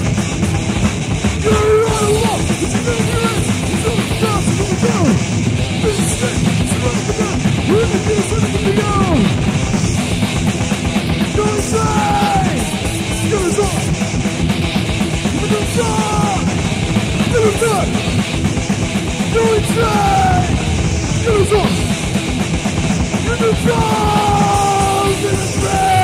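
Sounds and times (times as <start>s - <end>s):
thrash metal band playing: 0.0s - 26.0s.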